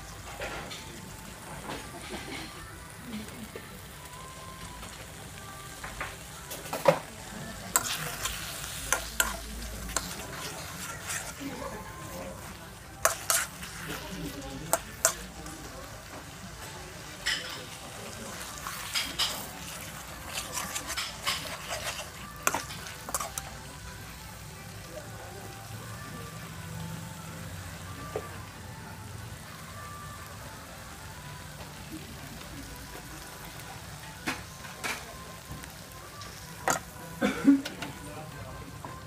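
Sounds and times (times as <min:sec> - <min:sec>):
sauce sizzling in pan: 0:00.0 - 0:39.0
metal spoon scraping metal dish: 0:13.0 - 0:14.0, 0:18.6 - 0:23.5.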